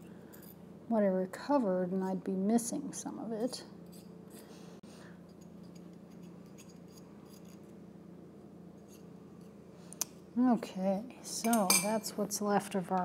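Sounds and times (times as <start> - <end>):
steady low hum: 0.0 - 13.0
metal spatula scraping wire: 5.3 - 7.7, 8.8 - 9.6.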